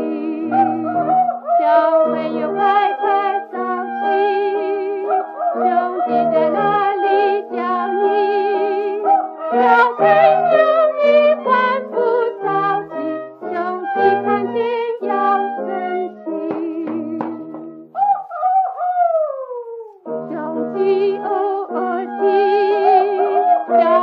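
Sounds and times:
woman singing on old record: 0.0s - 17.8s, 20.1s - 24.0s
instrumental accompaniment: 0.0s - 18.6s.

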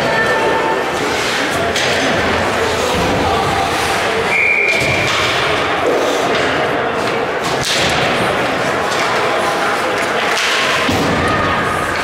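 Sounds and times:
skate and stick noise: 0.0s - 12.0s
spectators' voices: 0.0s - 12.0s.

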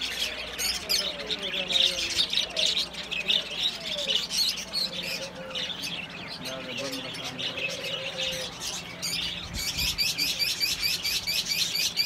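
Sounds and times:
budgerigars chattering and chirping: 0.0s - 12.0s.

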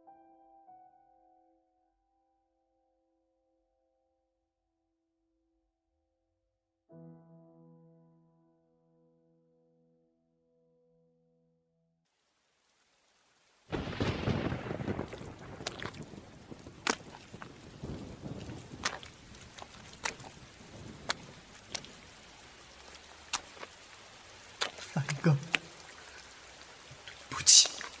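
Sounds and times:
steady rain: 12.1s - 28.0s
thunder clap rumbling: 13.7s - 22.2s
sharp drips: 14.8s - 28.0s.

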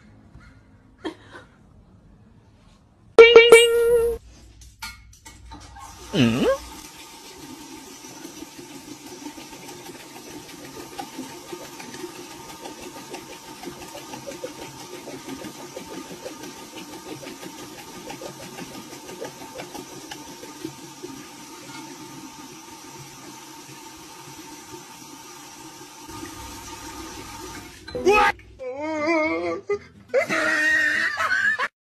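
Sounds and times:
dog lapping water: 8.4s - 21.2s.

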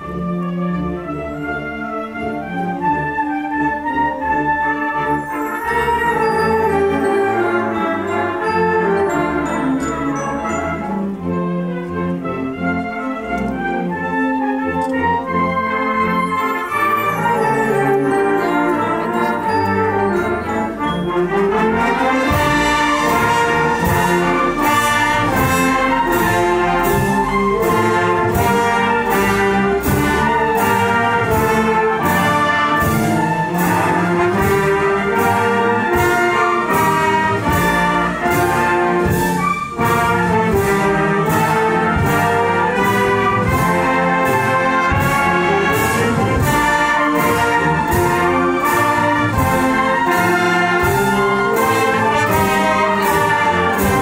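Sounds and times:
wind band playing: 0.0s - 54.0s
steady percussion strokes: 16.1s - 54.0s.

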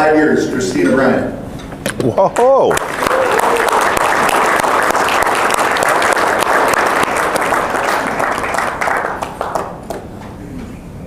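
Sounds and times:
audience applauding: 2.7s - 10.1s.

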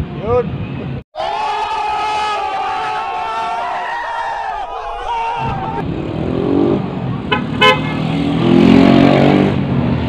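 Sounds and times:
vehicle engine speeding up: 5.0s - 10.0s
horn toots: 7.3s - 8.2s.

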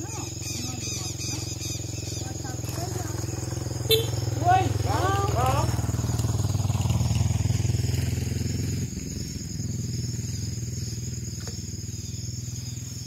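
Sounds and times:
insects buzzing: 0.0s - 13.0s
motorcycle engine running: 0.0s - 13.0s.

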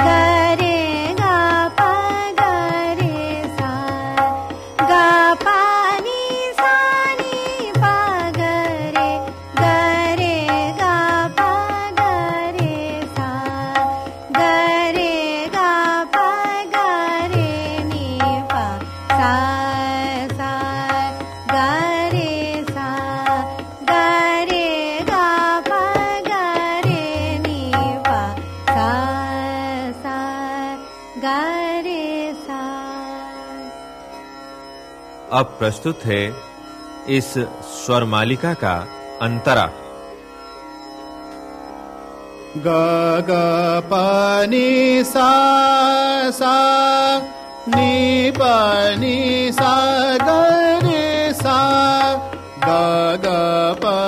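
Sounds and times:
tabla playing: 0.0s - 29.8s, 44.6s - 54.0s
person singing with sliding phrases: 42.6s - 54.0s.

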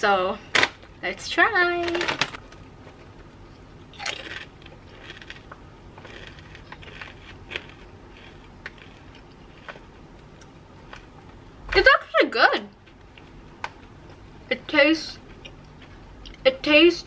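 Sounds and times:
person biting potato chip: 4.0s - 9.9s
chewing crunch: 4.0s - 11.2s.

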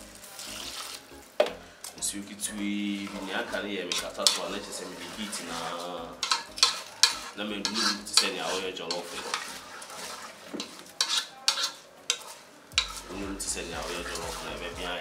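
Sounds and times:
rice sizzling: 0.0s - 15.0s
spatula scraping in metal pot: 0.3s - 1.1s, 2.5s - 15.0s
spatula knocking against pot: 10.6s - 13.1s.

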